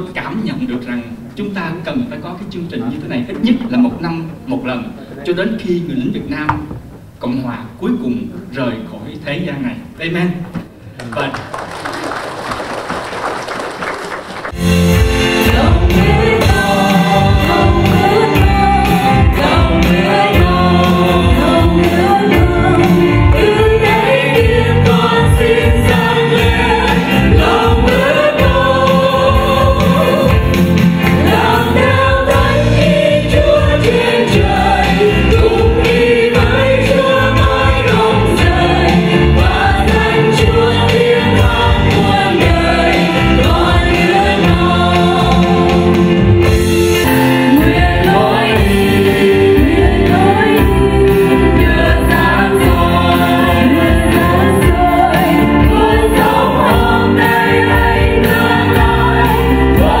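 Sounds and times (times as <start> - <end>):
keyboard and band accompaniment: 12.6 - 60.0
group singing a hymn: 15.3 - 60.0.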